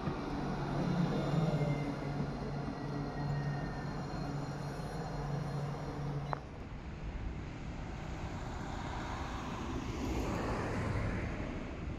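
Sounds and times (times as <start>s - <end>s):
tram humming and rumbling: 0.0s - 11.9s.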